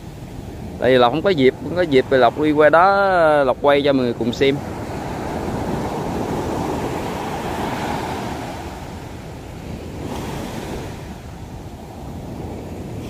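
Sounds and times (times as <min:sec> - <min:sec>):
surf breaking on beach: 0:00.0 - 0:13.0.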